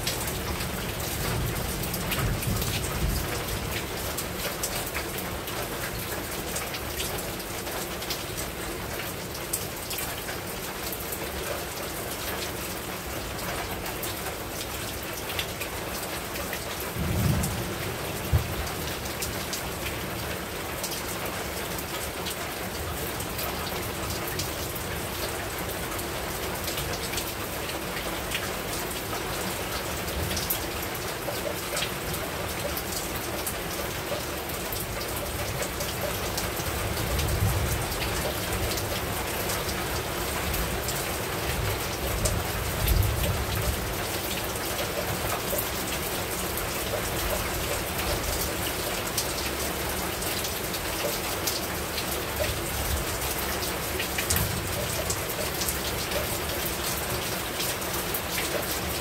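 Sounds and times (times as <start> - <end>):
heavy rain falling: 0.0 - 59.0
raindrops ticking nearby: 0.0 - 59.0
low thunder rumbles: 17.0 - 19.0.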